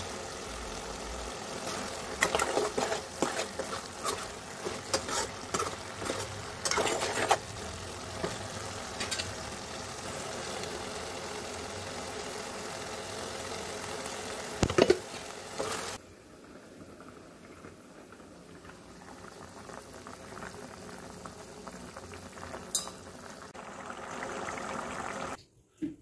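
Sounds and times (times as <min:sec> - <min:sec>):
curry hissing on stove: 0:00.0 - 0:16.0
metal spoon scraping pot: 0:01.7 - 0:09.4.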